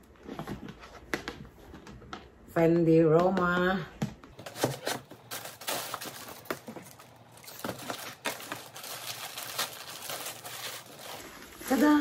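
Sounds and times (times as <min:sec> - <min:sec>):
paper rustling and crinkling: 0:04.4 - 0:12.0.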